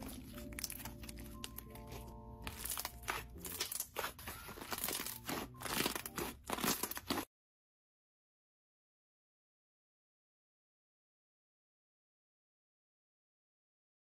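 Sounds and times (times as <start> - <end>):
faint background music: 0.0 - 7.3
slime crackling and popping: 0.0 - 7.3.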